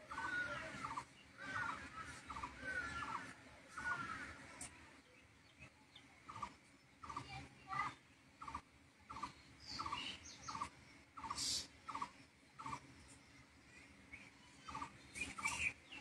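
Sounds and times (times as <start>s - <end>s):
animal chirping faintly: 6.3s - 12.8s.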